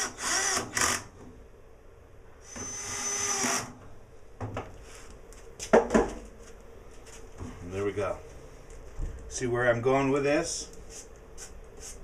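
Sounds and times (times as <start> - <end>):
cordless drill driving screw: 0.0 - 1.0, 2.5 - 3.7.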